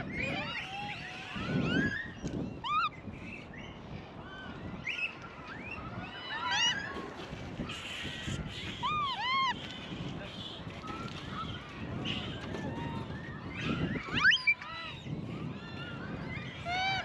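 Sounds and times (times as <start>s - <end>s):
monkeys coo calls: 6.0s - 17.0s.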